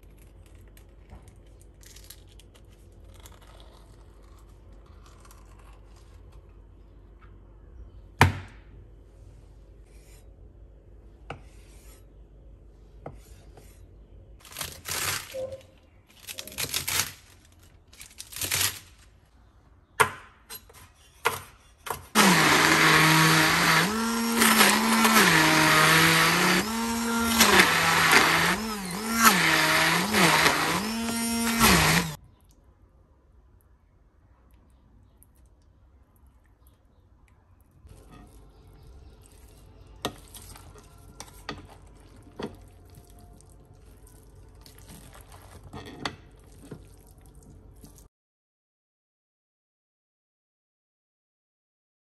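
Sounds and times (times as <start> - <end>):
immersion blender running: 22.2 - 32.2.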